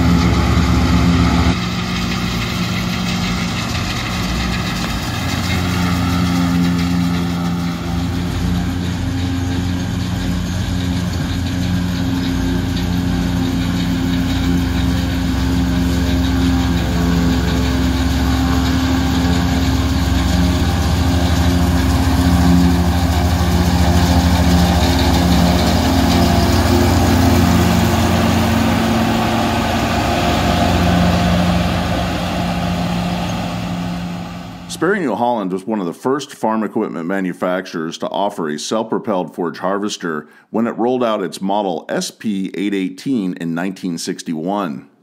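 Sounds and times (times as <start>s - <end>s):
forage harvester chopping hay: 0.0s - 34.7s
truck engine: 0.0s - 35.4s.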